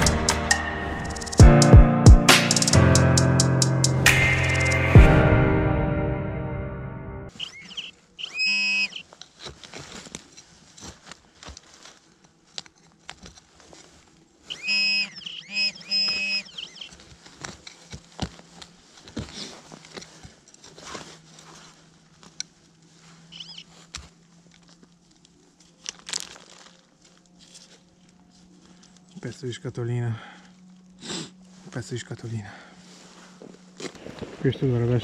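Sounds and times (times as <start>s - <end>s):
scraping soil and dry leaves: 7.3s - 35.0s
metal detector beeps: 7.4s - 9.0s, 14.5s - 16.9s, 23.3s - 23.6s.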